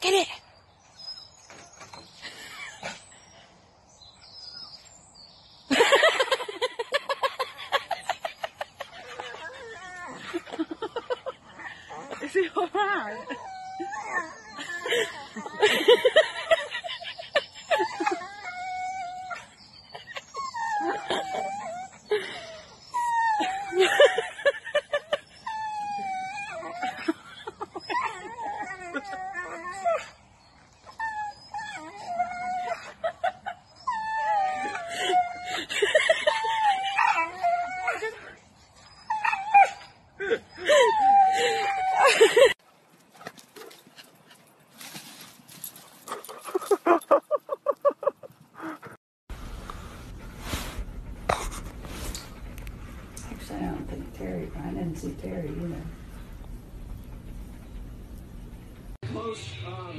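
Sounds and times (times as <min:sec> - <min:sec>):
dog howling and whining: 0:12.8 - 0:15.6, 0:17.6 - 0:22.1, 0:22.8 - 0:24.4, 0:25.2 - 0:30.2, 0:30.8 - 0:35.6, 0:36.2 - 0:42.5.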